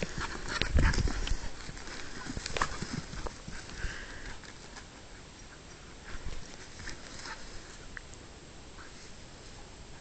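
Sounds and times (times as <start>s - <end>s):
footsteps on dirt track: 0.0s - 5.0s.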